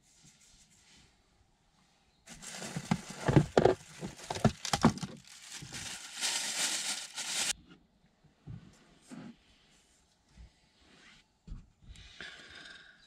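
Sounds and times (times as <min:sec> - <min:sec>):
packaging crinkling: 0:02.3 - 0:07.6.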